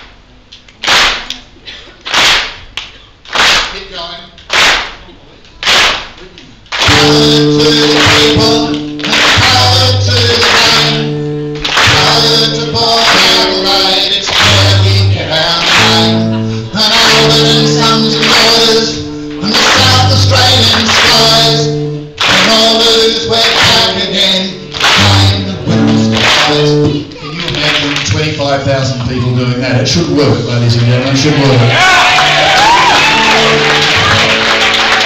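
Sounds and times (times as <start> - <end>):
audience clapping along: 0.0 - 29.2, 30.6 - 35.0
strummed acoustic guitar: 6.8 - 30.8
man singing: 6.8 - 30.9.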